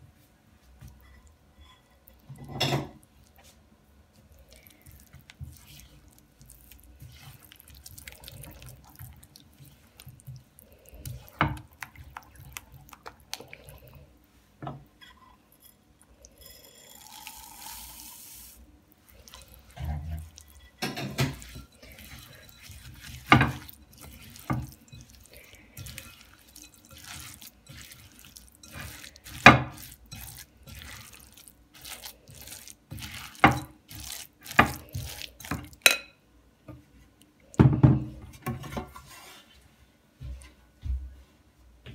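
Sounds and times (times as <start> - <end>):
spatula squelching and scraping paste: 0.9 - 14.0, 16.4 - 36.0.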